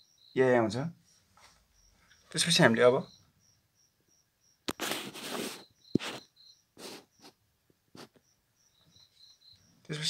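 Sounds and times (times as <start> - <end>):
crickets chirping: 0.0 - 10.0.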